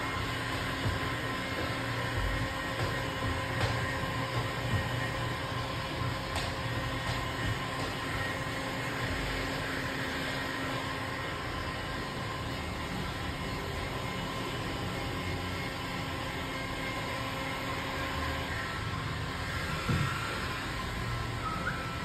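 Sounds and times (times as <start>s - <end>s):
heat gun fan humming: 0.0s - 22.0s.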